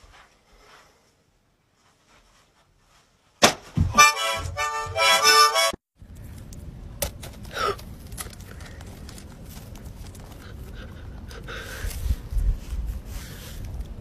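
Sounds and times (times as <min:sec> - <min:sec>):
reedy accordion-like music: 0:03.9 - 0:05.8.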